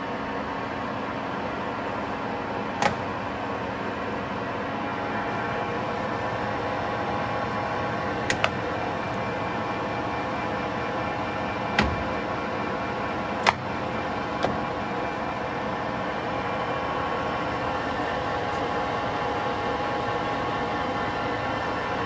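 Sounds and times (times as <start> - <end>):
lathe running with gear whine: 0.0 - 22.0.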